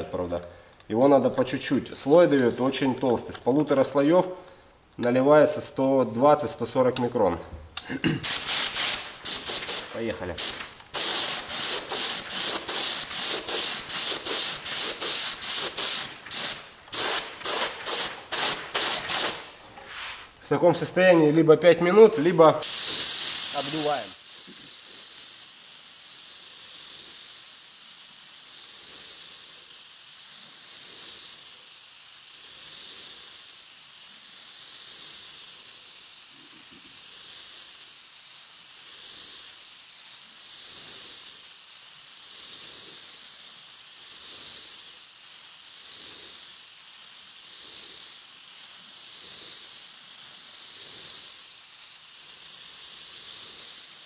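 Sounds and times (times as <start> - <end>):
spray gun air hissing: 8.2 - 20.4, 22.6 - 54.0.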